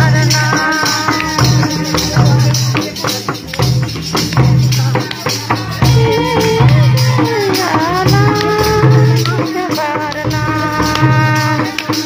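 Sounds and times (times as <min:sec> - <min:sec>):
shaken percussion: 0:00.0 - 0:12.0
steady drum beat: 0:00.0 - 0:12.0.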